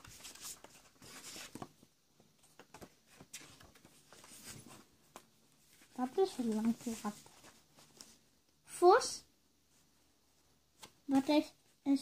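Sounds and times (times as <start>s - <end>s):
book pages turning: 0.0s - 1.8s, 2.4s - 8.2s.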